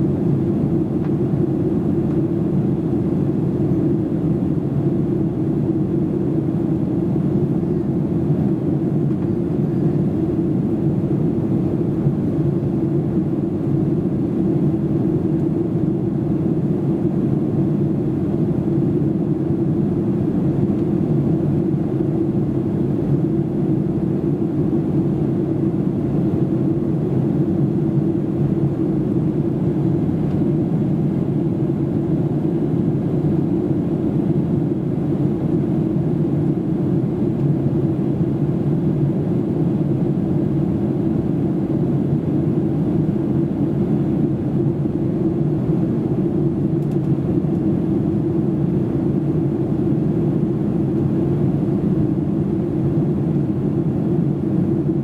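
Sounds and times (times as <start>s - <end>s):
airplane cabin engine drone: 0.0s - 55.0s.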